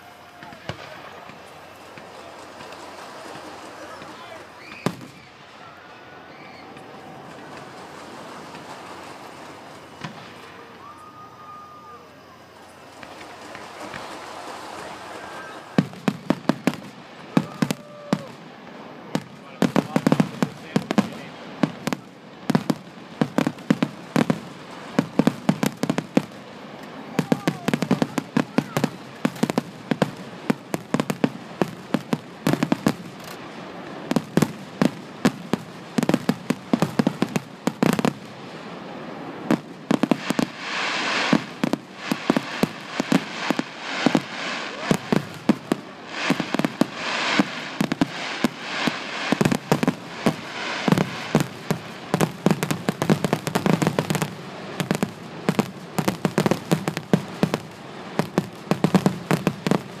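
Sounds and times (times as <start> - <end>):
fireworks crackling: 0.0 - 60.0
firework shells bursting: 12.3 - 38.3, 39.4 - 60.0.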